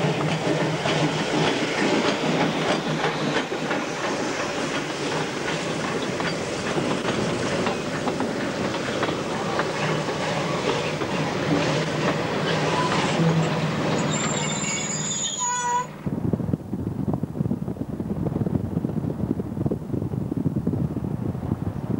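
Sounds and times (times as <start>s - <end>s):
train wheels clattering over rails: 0.0s - 15.1s
wheels squealing against rails: 5.5s - 6.7s, 8.8s - 16.0s.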